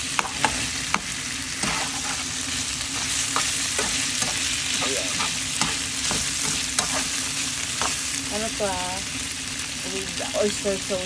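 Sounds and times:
food sizzling in frying pan: 0.0s - 11.0s
spatula scraping and tapping pan: 0.2s - 2.3s, 3.0s - 7.1s.

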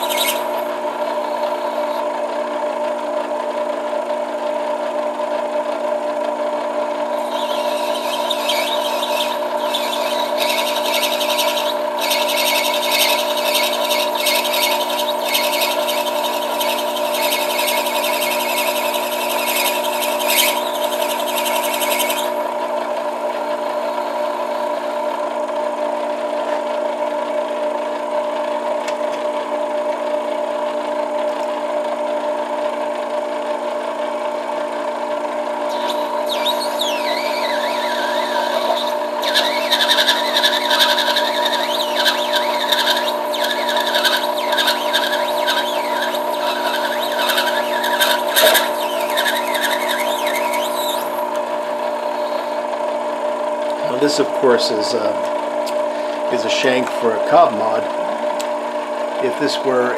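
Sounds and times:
lathe tool scraping cut: 0.0s - 2.3s, 6.2s - 26.7s, 34.8s - 57.8s
metal lathe running: 0.0s - 4.5s, 5.5s - 28.6s, 34.2s - 59.9s.

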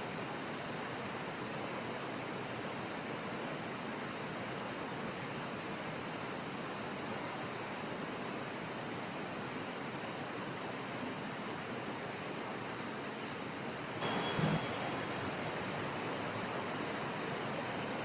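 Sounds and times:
pool hall hiss: 0.0s - 18.0s
brief sound with high tone: 14.0s - 15.3s.

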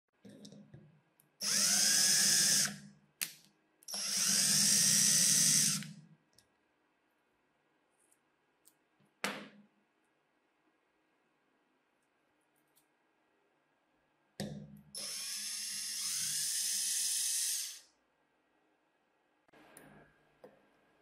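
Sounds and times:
power drill whining: 1.4s - 2.8s, 3.9s - 5.9s, 15.0s - 17.8s.

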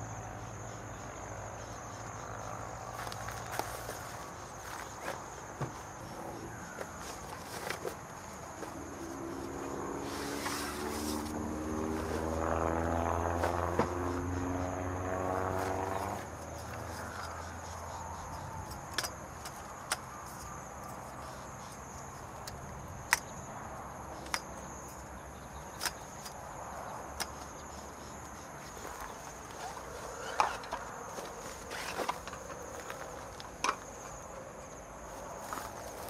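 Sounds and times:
high-pitched insect drone: 0.0s - 35.7s
vehicle engine running: 5.7s - 18.7s.

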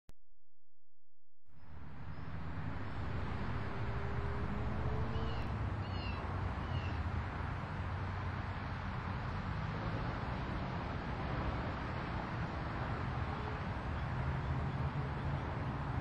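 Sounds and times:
cars driving past: 1.6s - 16.0s
bird chirping: 4.9s - 7.0s.

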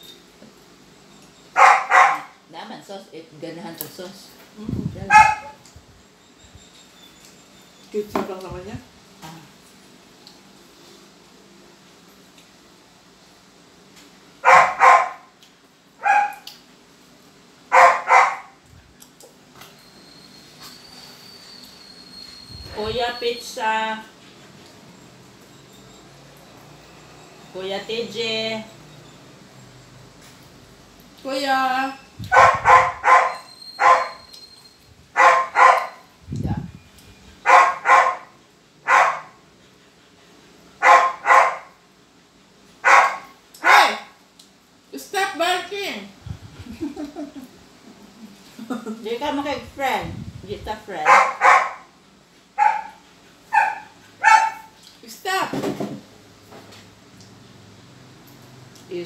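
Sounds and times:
dog barking: 1.6s - 2.4s, 5.1s - 5.6s, 14.4s - 15.3s, 16.0s - 16.5s, 17.7s - 18.6s, 32.3s - 34.2s, 35.2s - 36.0s, 37.4s - 39.4s, 40.8s - 41.8s, 42.8s - 44.1s, 51.0s - 51.9s, 52.6s - 54.8s.

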